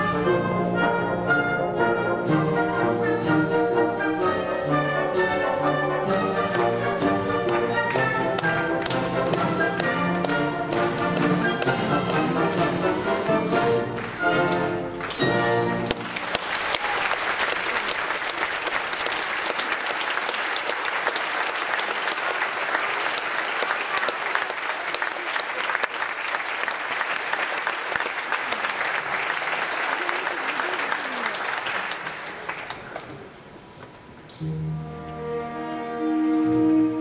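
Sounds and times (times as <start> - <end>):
loud orchestral chords: 0.0 - 16.4, 34.3 - 37.0
orchestra playing: 0.0 - 18.8, 34.3 - 37.0
audience applause: 6.1 - 12.8, 13.7 - 33.4.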